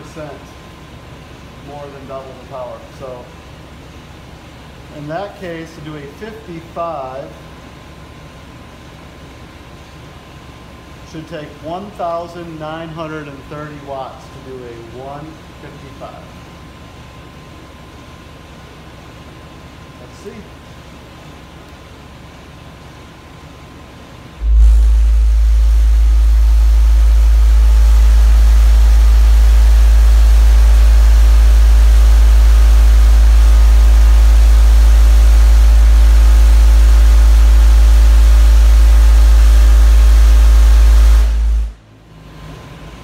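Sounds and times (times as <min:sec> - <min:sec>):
loud subwoofer bass tone: 0:24.4 - 0:41.8.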